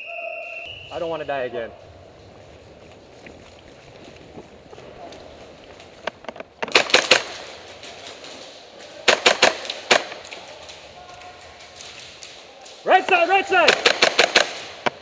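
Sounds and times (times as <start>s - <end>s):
airsoft guns firing: 6.6s - 15.0s.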